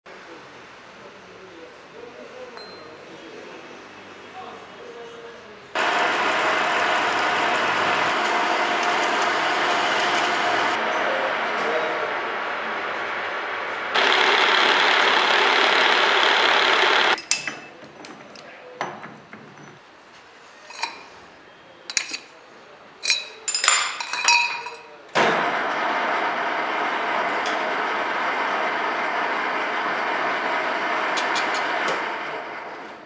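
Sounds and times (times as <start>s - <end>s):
lathe running: 5.8s - 17.2s, 25.4s - 33.0s
milling machine cutting steel: 5.8s - 17.5s, 25.4s - 32.8s
metal tools clinking: 17.2s - 18.4s, 20.6s - 21.2s, 21.9s - 22.3s, 23.0s - 25.0s.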